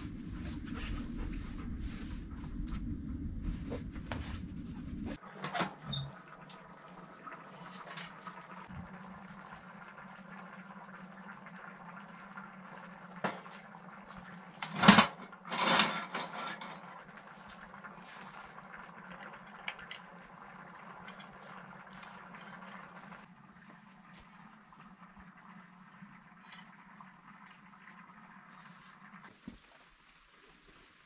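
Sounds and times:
low steady hum: 0.0s - 5.2s
wood stove fire crackling: 0.0s - 5.2s, 5.9s - 16.1s, 16.7s - 31.0s
glass clinking and rattling: 20.9s - 22.9s.

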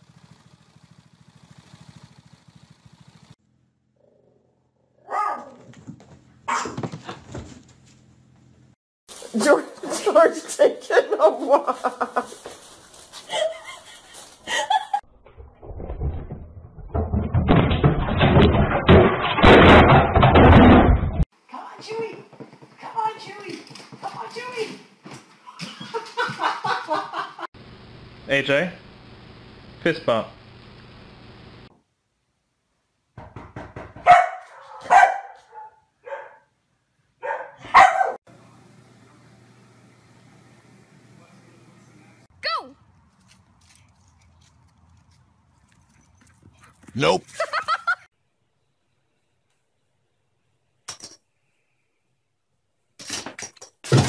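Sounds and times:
dog barking: 5.0s - 5.7s, 6.4s - 6.9s, 34.0s - 36.5s, 37.2s - 38.2s
knocks and thumps: 5.6s - 7.7s, 15.7s - 21.2s, 33.2s - 34.2s.

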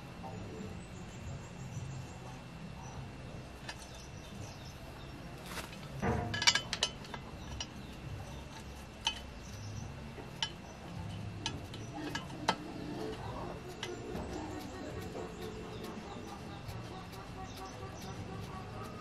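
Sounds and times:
low steady hum: 0.0s - 19.0s
metallic clinks of tools: 6.2s - 7.8s.

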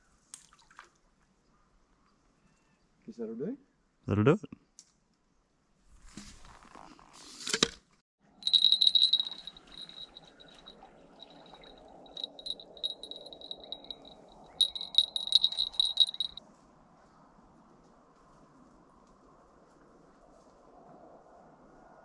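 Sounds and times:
bell jingling: 8.4s - 16.4s
handling rustle: 8.4s - 16.4s.

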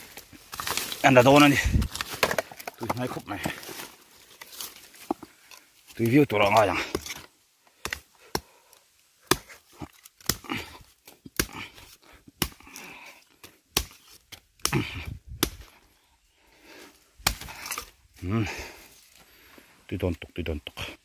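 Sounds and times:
knife chopping bamboo: 9.2s - 10.7s, 11.3s - 15.7s, 17.2s - 17.9s.

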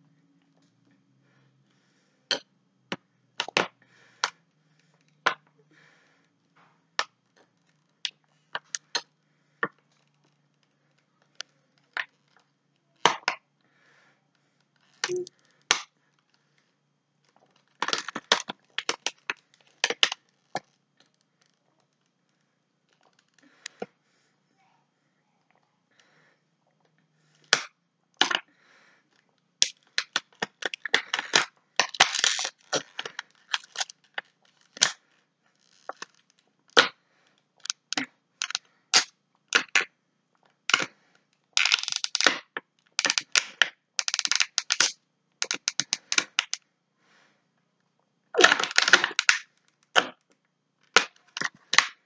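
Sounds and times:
plastic bottle crackling and popping: 2.3s - 5.5s, 7.0s - 13.4s, 14.8s - 16.4s, 17.2s - 22.1s, 22.9s - 23.9s, 27.4s - 28.5s, 29.2s - 46.6s, 48.3s - 52.0s.

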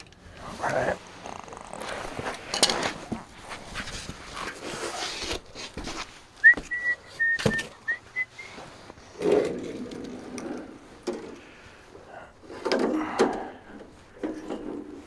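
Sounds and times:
mat scraping on ground: 0.4s - 6.8s
thin high whistle: 6.4s - 8.6s.

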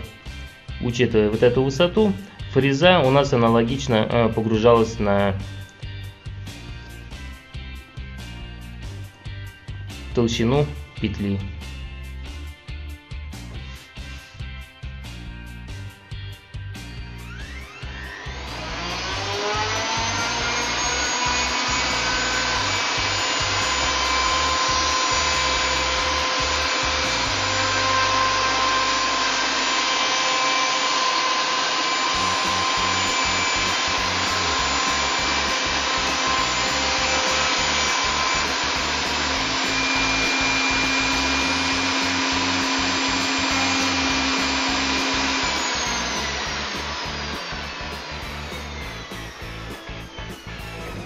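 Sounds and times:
router high whine: 17.1s - 51.0s.

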